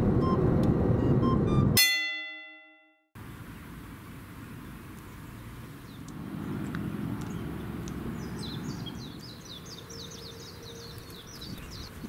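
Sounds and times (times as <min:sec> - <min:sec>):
bird chirping: 0:05.0 - 0:12.0.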